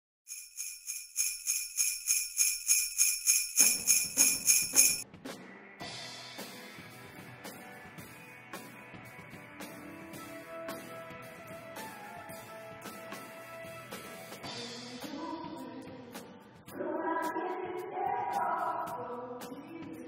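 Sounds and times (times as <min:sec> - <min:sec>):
sleigh bells shaken: 0:00.3 - 0:05.0
soft instrumental music: 0:05.2 - 0:16.5.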